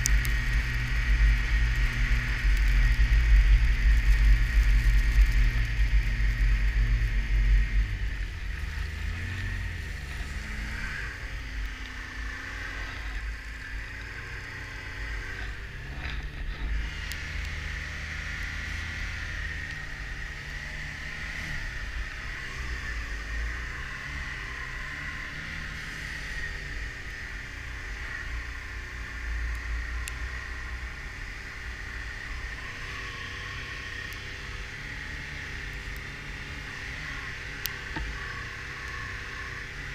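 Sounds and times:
low rumble: 0:00.0 - 0:25.4
snowmobile engine: 0:00.0 - 0:39.9.

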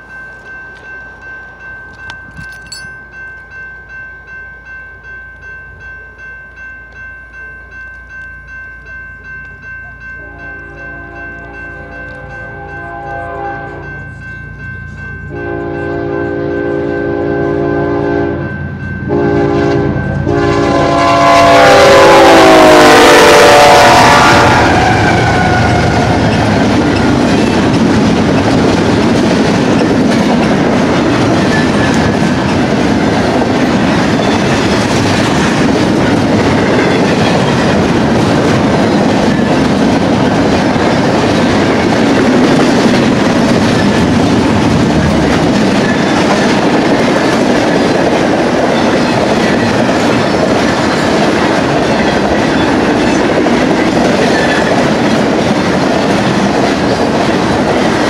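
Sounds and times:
train air horn blasts: 0:10.2 - 0:13.9, 0:15.3 - 0:18.5, 0:19.1 - 0:26.3
train cars rolling over rails: 0:24.7 - 0:58.0.

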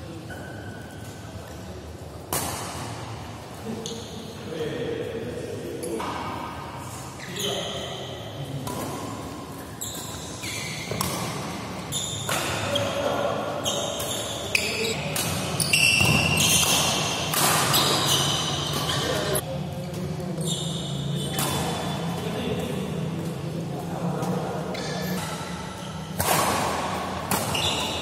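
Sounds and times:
shoes squeaking on court: 0:08.8 - 0:23.5, 0:24.2 - 0:26.2, 0:27.2 - 0:28.0
rackets striking shuttlecock: 0:10.8 - 0:12.8, 0:13.8 - 0:19.2, 0:21.2 - 0:23.4, 0:24.2 - 0:28.0.

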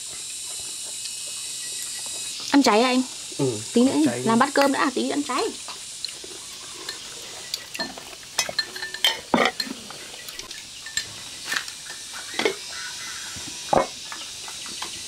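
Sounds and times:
utensils clinking against bowls: 0:03.9 - 0:12.7.

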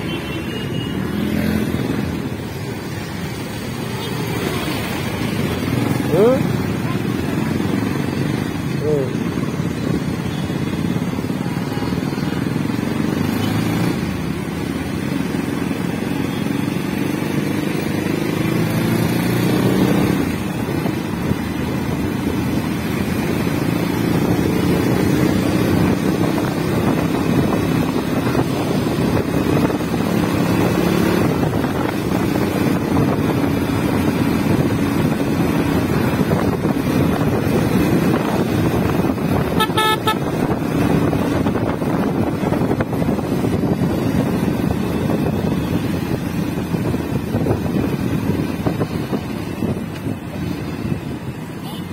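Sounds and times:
motorcycle engine: 0:00.0 - 0:51.9
wind and road noise: 0:00.0 - 0:51.9
horn toot: 0:39.4 - 0:40.4.

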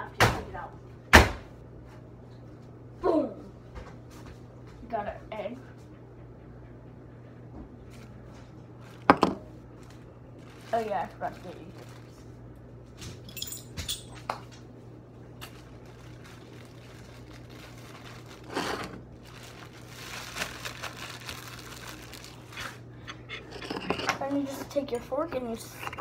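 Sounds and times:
low steady hum: 0:00.0 - 0:26.0
plastic bag crinkling: 0:08.8 - 0:12.4, 0:15.4 - 0:22.8.

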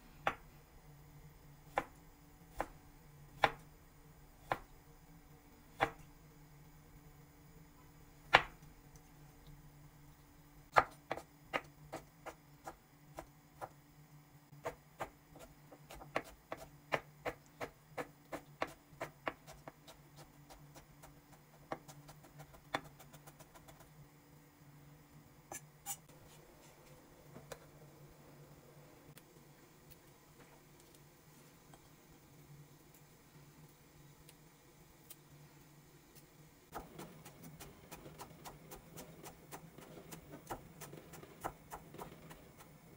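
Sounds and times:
knife chopping on wooden board: 0:14.6 - 0:20.6.

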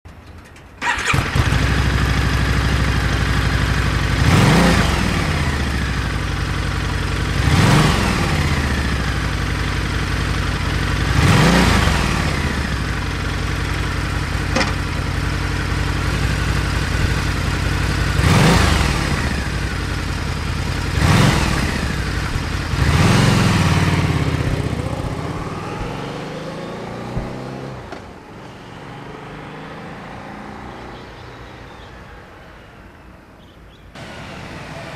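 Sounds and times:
motorcycle engine idling: 0:00.2 - 0:26.0
motorcycle throttle blips: 0:13.0 - 0:28.2.

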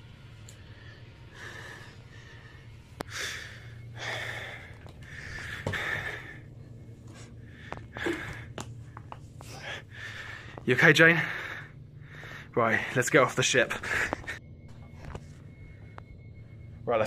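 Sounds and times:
person gasping: 0:07.6 - 0:08.6.

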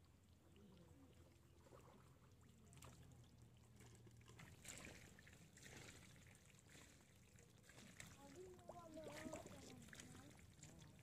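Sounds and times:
splashing in muddy water: 0:03.8 - 0:11.0.

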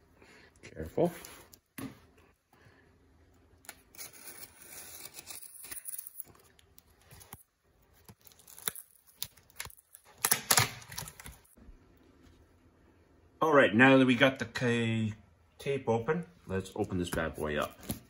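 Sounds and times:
packing tape tearing: 0:08.0 - 0:11.5.

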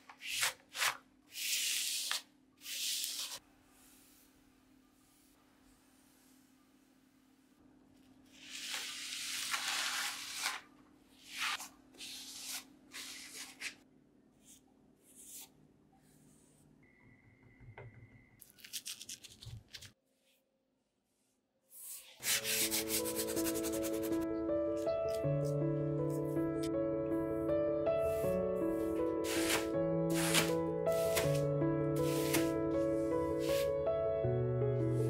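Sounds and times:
background music: 0:22.3 - 0:35.0
brush rubbing over board: 0:29.2 - 0:31.4, 0:32.0 - 0:32.5.

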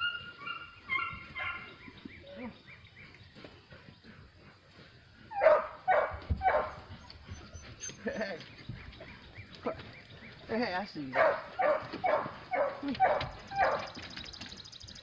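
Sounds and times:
dogs whining: 0:00.0 - 0:02.8, 0:05.2 - 0:10.0, 0:11.6 - 0:14.3
dog barking: 0:05.4 - 0:06.8, 0:11.1 - 0:13.9.

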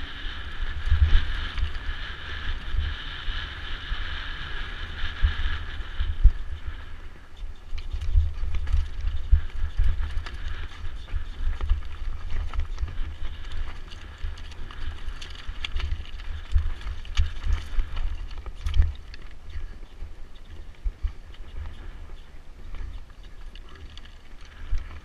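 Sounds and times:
bike rattling: 0:00.0 - 0:25.0
wind rumble on microphone: 0:00.0 - 0:25.0
tyres crunching over stones: 0:08.3 - 0:19.9, 0:22.7 - 0:25.0.

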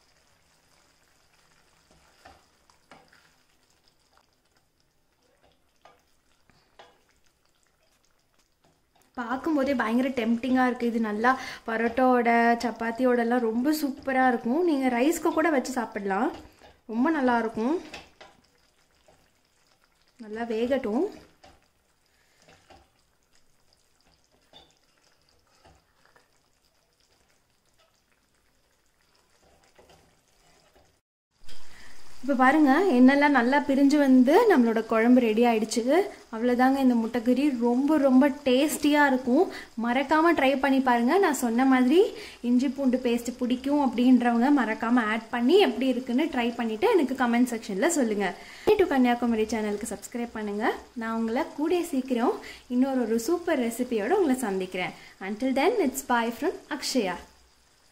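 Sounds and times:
curry simmering hiss: 0:00.0 - 0:57.9
gravy sizzling: 0:00.0 - 0:57.9
spatula scraping metal pan: 0:29.4 - 0:30.9.

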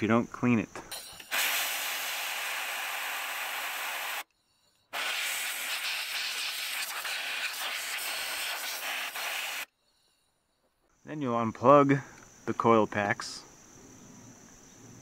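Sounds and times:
compressed air blow gun hissing: 0:00.9 - 0:10.1.

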